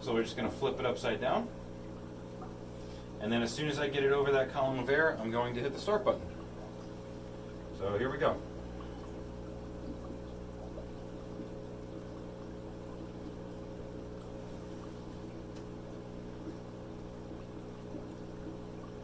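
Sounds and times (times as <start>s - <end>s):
aquarium air pump humming: 0.0s - 19.0s
air bubbling through water: 5.1s - 19.0s.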